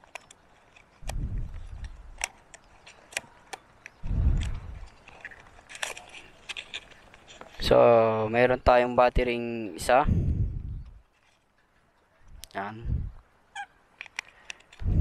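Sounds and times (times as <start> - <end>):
packaging clicks and crinkles: 0.0 - 7.6
low rumbles: 1.0 - 2.3, 4.0 - 5.0, 9.9 - 11.0, 12.2 - 13.2.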